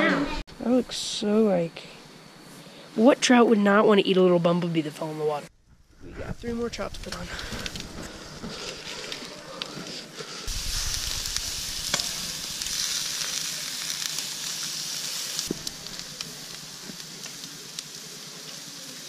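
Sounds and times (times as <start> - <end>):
fish sizzling on grill: 5.9 - 19.0.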